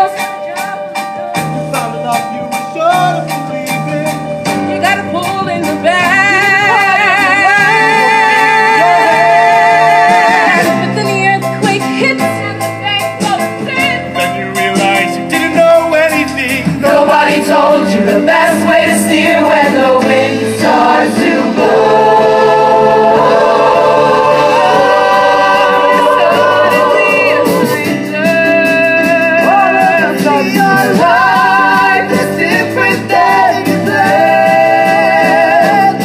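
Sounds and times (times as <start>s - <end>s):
instrumental accompaniment with beat: 0.0s - 36.0s
young people singing show tune: 6.0s - 11.2s, 14.0s - 36.0s.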